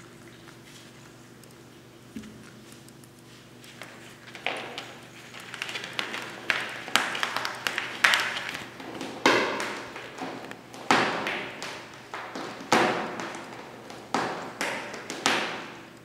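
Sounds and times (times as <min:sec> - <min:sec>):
kitten licking its paw: 0:00.0 - 0:04.2.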